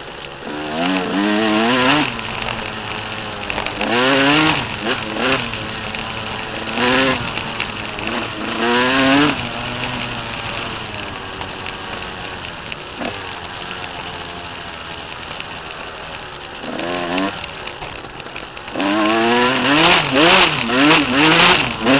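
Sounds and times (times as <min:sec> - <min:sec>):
dirt bike engine revving: 0:00.0 - 0:21.9.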